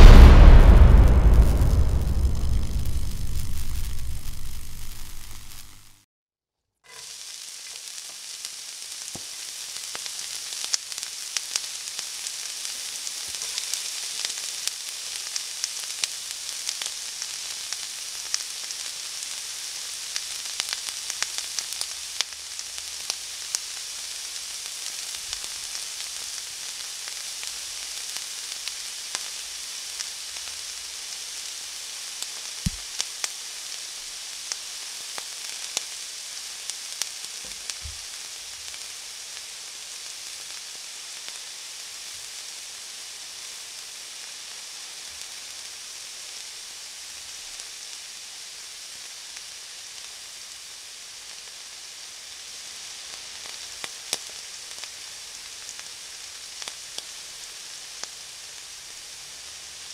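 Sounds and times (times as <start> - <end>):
fat popping and crackling: 0.0 - 6.0, 32.7 - 32.9
meat sizzling on a griddle: 2.3 - 6.0, 6.9 - 59.9.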